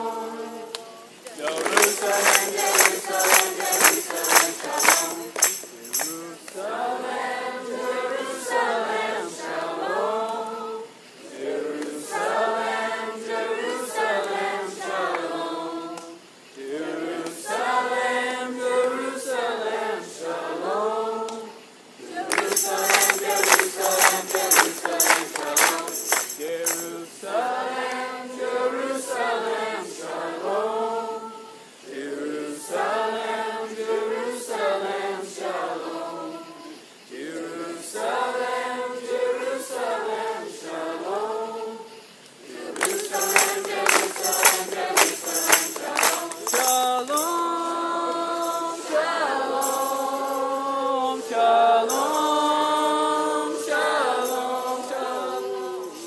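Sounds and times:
choir singing: 0.0 - 56.0
rhythmic high percussion: 1.6 - 6.5, 22.2 - 27.1, 42.6 - 47.5, 48.4 - 50.7, 51.9 - 52.5.

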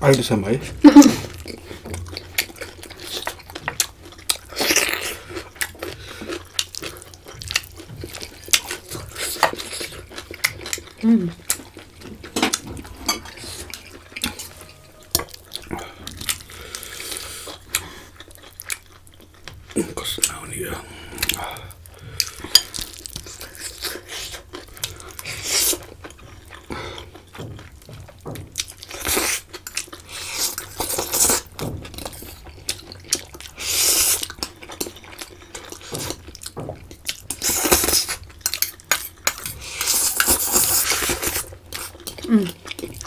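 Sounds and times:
mouth sounds: 11.0 - 11.4
cutlery clinking on metal bowls: 12.0 - 15.4
slurping: 39.0 - 42.9.

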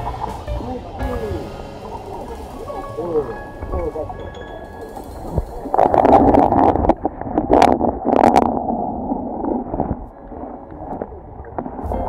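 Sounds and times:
muffled water gurgling underwater: 0.0 - 12.0.

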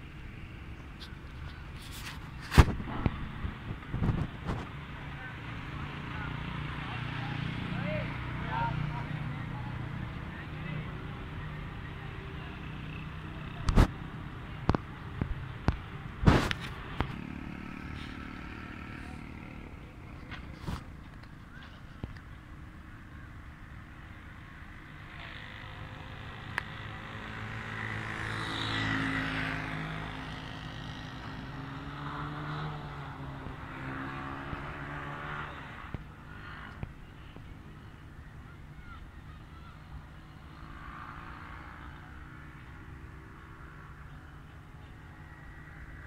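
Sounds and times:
motor vehicle passing: 15.2 - 22.1, 24.6 - 36.9, 38.8 - 44.3.

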